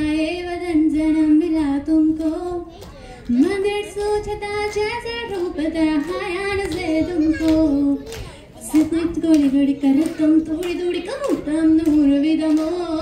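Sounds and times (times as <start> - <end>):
singer breathing: 2.8 - 3.3.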